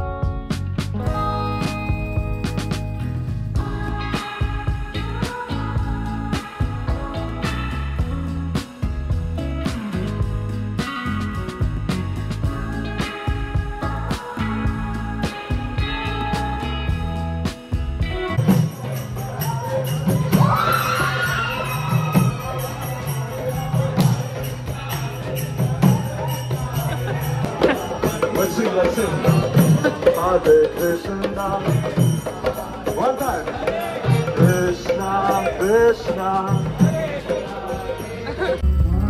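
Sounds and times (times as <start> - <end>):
jingling metal percussion: 1.7 - 39.0
voices chanting: 31.0 - 39.0.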